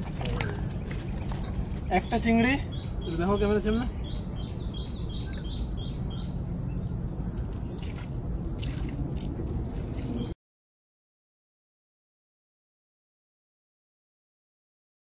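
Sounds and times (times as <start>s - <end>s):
insects shrilling: 0.0s - 10.3s.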